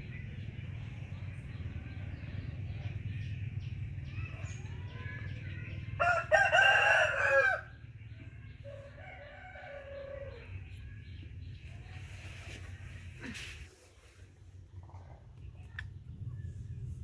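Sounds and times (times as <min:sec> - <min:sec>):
rooster crowing: 0:06.0 - 0:07.7.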